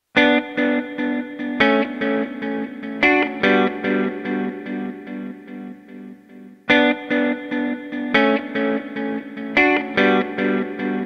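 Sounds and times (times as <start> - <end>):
plucked guitar playing chords: 0.2 - 11.0.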